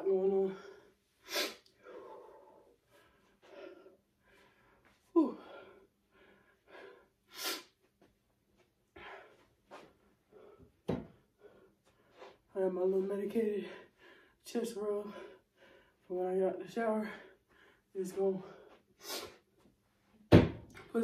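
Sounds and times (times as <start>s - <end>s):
heavy breathing: 0.5s - 7.7s.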